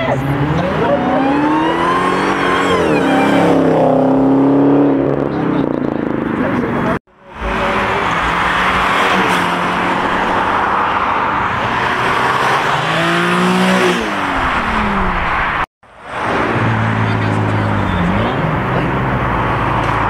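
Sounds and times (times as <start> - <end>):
tyres squealing: 0.0 - 5.0.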